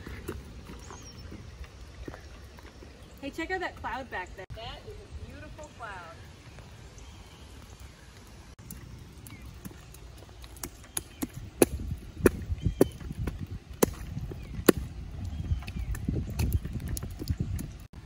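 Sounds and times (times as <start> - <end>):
high heel footsteps on pavement: 0.0 - 4.1, 7.6 - 17.6.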